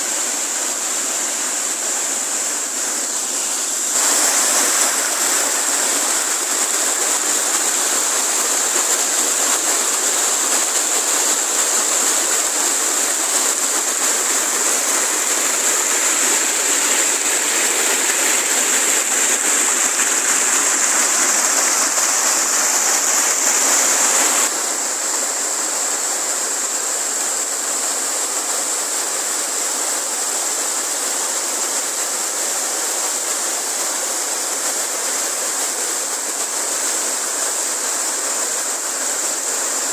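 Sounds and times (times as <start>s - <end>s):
stream rushing over boulders: 0.0s - 39.9s.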